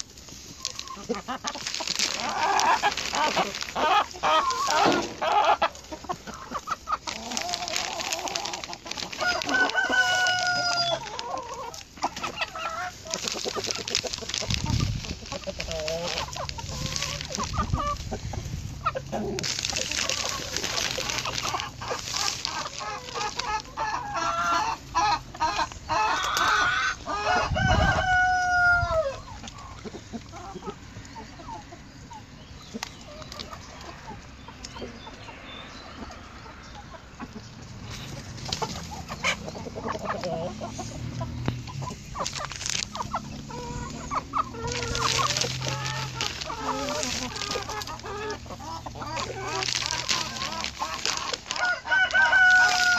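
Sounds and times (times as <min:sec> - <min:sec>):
hens clucking: 0:00.0 - 0:52.9
rooster crowing: 0:09.2 - 0:11.0, 0:27.1 - 0:29.2, 0:51.5 - 0:52.9.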